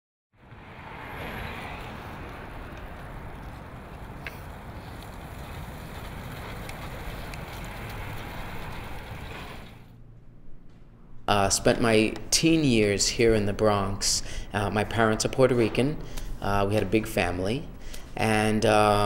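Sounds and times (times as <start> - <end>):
passing cars and road noise: 0.3 - 10.9.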